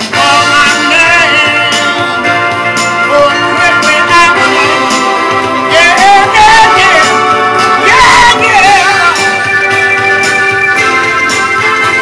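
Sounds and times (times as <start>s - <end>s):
man singing: 0.0s - 9.5s
held backing chords: 0.0s - 12.0s.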